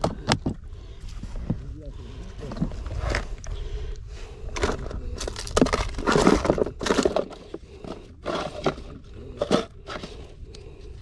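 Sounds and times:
small gear rattling in box: 4.6s - 10.2s.

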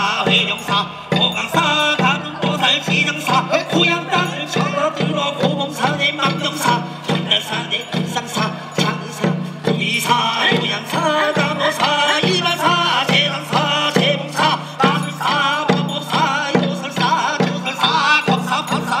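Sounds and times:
drums beating: 0.0s - 19.0s.

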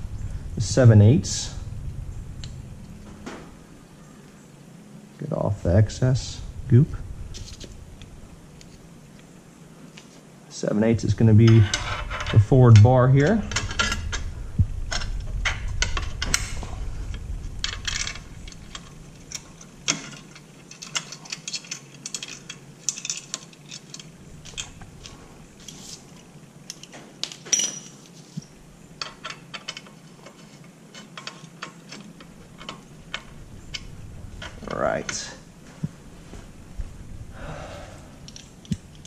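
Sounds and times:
low handling rumble: 0.0s - 9.8s, 10.8s - 20.7s, 24.0s - 25.7s, 32.1s - 39.0s.

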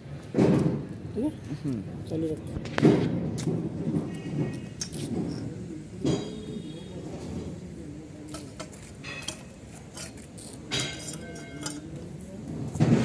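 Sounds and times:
steel rod clinking on rollers: 6.0s - 6.6s, 8.3s - 12.2s.

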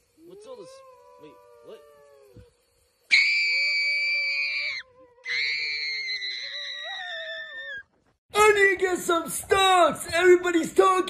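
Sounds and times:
person screaming: 0.2s - 2.5s, 3.1s - 7.7s.

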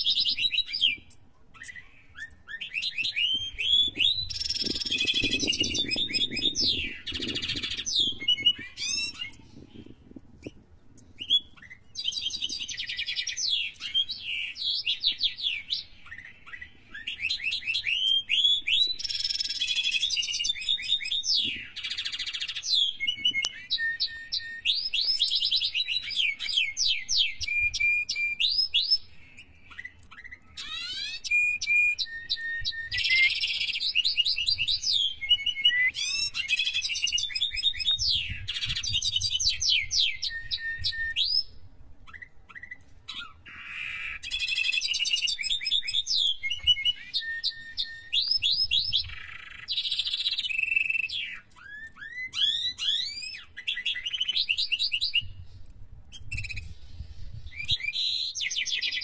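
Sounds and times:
budgerigars chirping: 42.1s - 46.0s.

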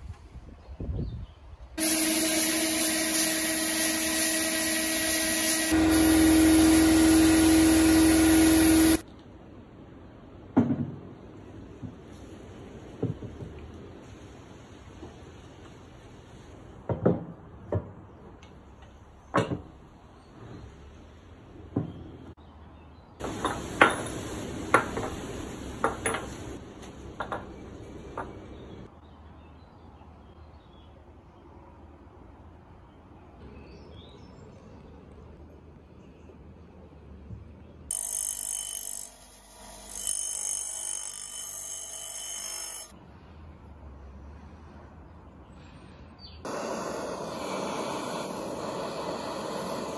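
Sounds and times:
grinding wheel on metal: 1.8s - 9.0s, 37.9s - 42.9s.

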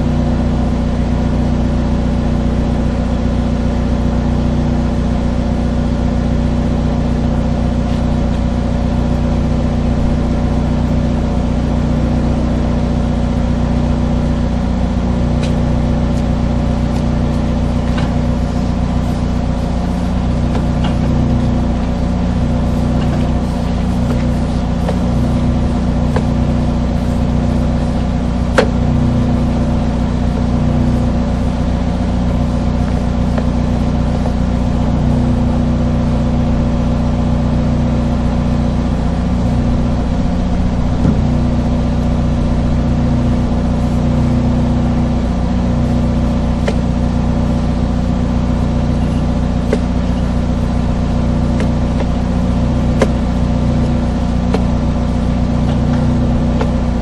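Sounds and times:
engine droning: 0.0s - 57.0s.

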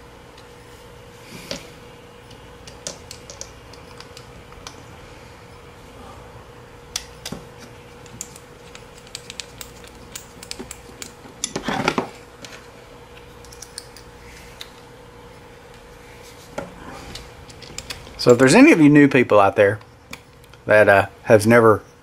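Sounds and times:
faint steady hum: 0.0s - 22.0s
screws and wrench clicking: 8.0s - 11.2s.

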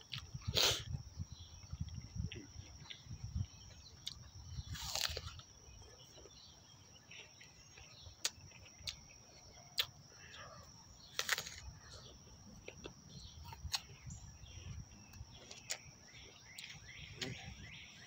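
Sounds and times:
wet chewing: 1.7s - 10.0s, 15.1s - 17.4s
crisp crunching apple bite: 4.0s - 5.5s, 11.1s - 11.7s.

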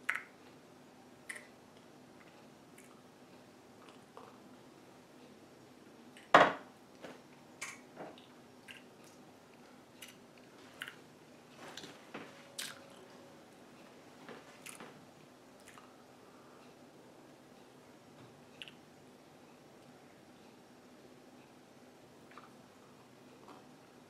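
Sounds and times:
mouth clicks and swallows: 18.6s - 18.8s.

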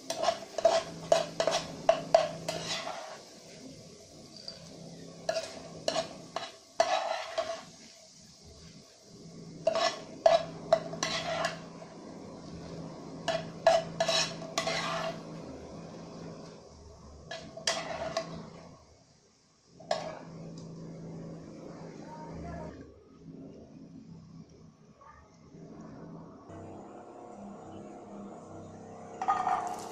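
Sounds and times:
spatula scraping a frying pan: 0.0s - 3.7s, 4.6s - 8.0s, 9.5s - 16.6s, 17.2s - 18.7s, 19.8s - 21.2s, 29.2s - 29.9s.

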